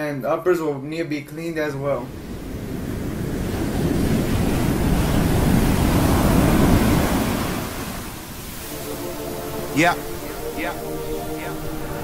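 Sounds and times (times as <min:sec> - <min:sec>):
wind-like rush of noise: 0:01.8 - 0:12.0.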